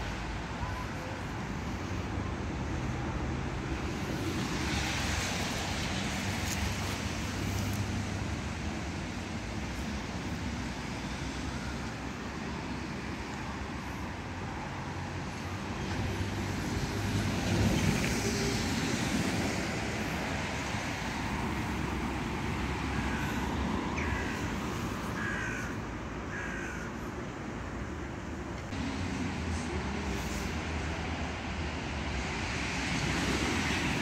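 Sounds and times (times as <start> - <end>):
road traffic rumble: 0.0 - 34.0.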